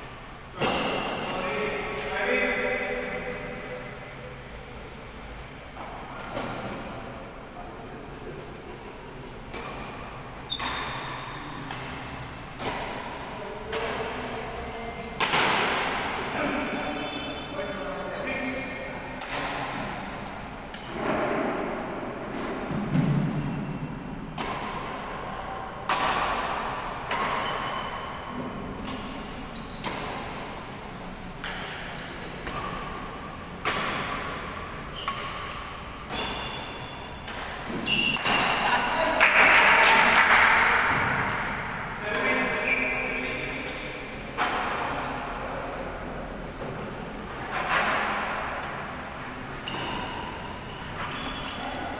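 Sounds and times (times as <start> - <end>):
racket hitting shuttlecock: 9.4 - 14.3, 15.1 - 16.3, 18.8 - 23.6, 24.2 - 42.7, 47.5 - 51.7
badminton racket hitting shuttlecock: 25.8 - 28.2, 28.8 - 38.6.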